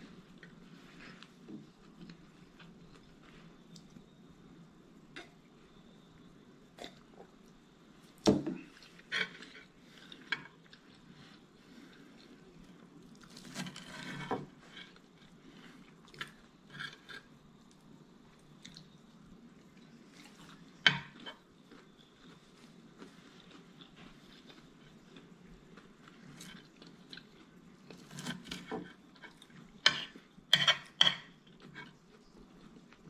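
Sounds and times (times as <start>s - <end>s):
soft chewing: 0.0s - 6.0s, 6.7s - 33.0s
cutlery clinking on a plate: 29.9s - 31.8s.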